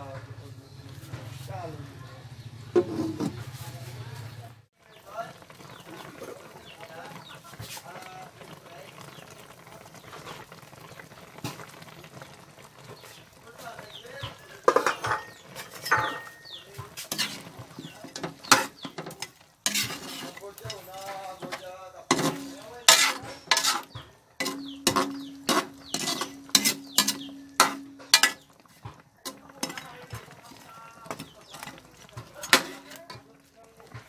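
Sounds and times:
metal spatula scraping a wok: 0:02.8 - 0:04.0, 0:14.0 - 0:34.0.

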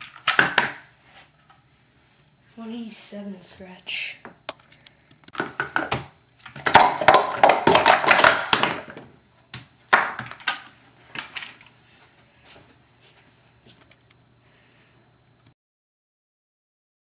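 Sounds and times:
plastic cups clattering: 0:05.3 - 0:09.1.

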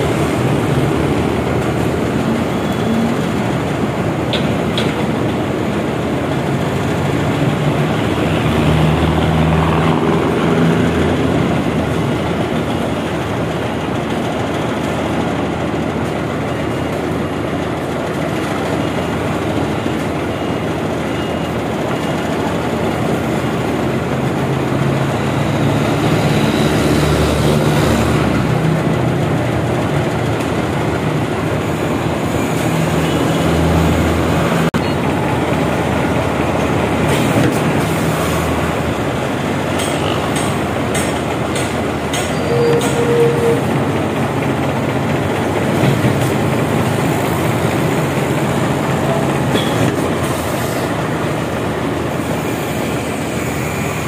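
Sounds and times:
concrete pump truck running: 0:00.0 - 0:54.0.

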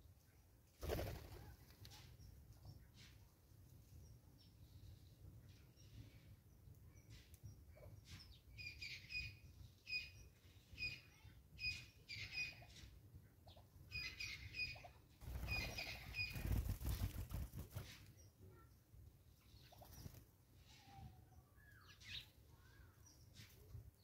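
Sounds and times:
wings fluttering: 0:00.8 - 0:02.1, 0:15.2 - 0:18.2, 0:19.7 - 0:20.3.

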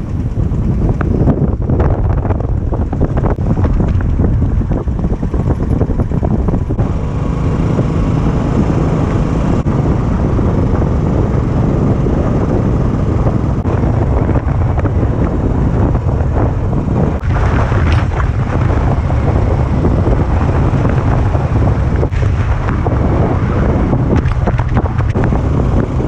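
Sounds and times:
scooter engine: 0:00.0 - 0:26.0
wind rushing over microphone: 0:00.0 - 0:26.0.

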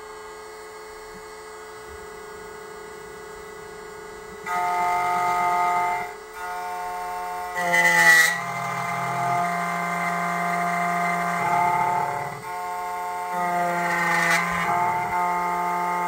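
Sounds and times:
key-cutting machine motor whir: 0:04.4 - 0:16.0.

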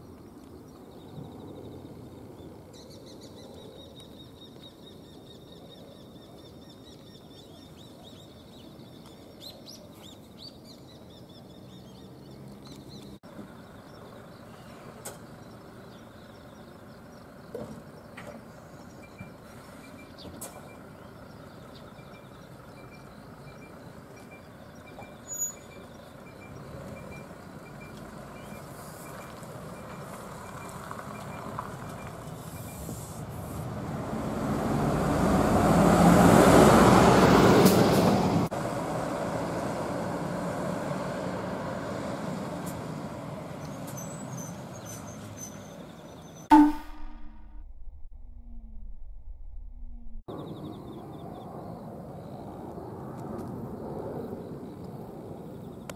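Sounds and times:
diesel bus driving past: 0:06.6 - 0:47.1.

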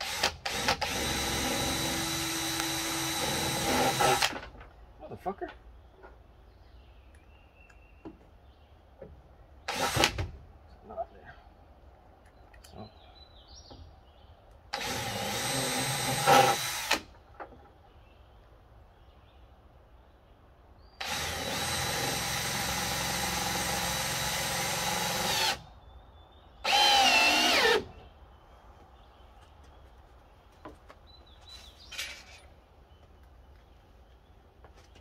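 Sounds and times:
cordless drill driving screws: 0:00.0 - 0:04.5, 0:09.7 - 0:10.2, 0:14.8 - 0:17.1, 0:21.0 - 0:25.6, 0:26.6 - 0:27.9.

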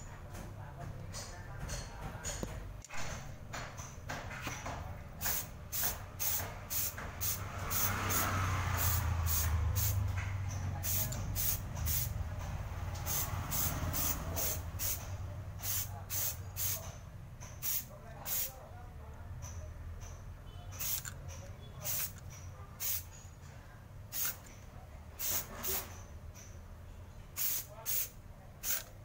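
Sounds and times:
spray can hissing bursts: 0:05.2 - 0:10.0, 0:10.8 - 0:12.1, 0:13.0 - 0:16.8, 0:17.6 - 0:18.5, 0:20.8 - 0:21.1, 0:21.8 - 0:22.2, 0:22.8 - 0:23.0, 0:24.1 - 0:24.5, 0:25.2 - 0:25.8, 0:27.4 - 0:28.9.

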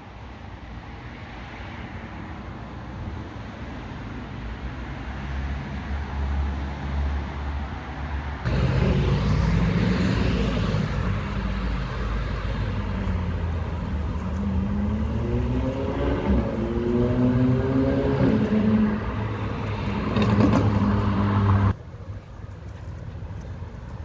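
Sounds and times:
car engines rumbling: 0:00.6 - 0:24.0
vehicle accelerating: 0:08.5 - 0:21.8.

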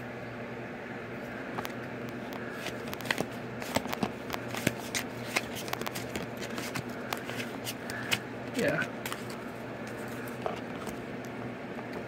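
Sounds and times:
cards flipped by hand: 0:01.6 - 0:11.0.

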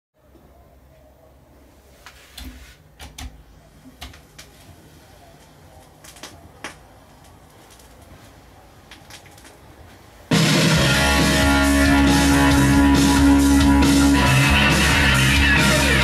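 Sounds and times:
vinyl crackles and pops: 0:03.9 - 0:10.3.

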